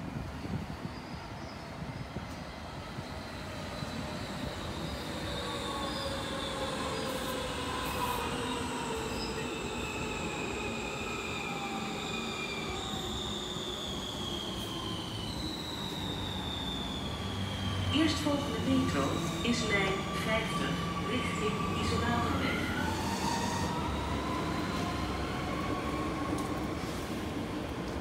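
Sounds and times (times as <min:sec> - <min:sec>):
metro train braking whine: 0:00.0 - 0:28.0
train wheels rumbling on rails: 0:00.0 - 0:28.0.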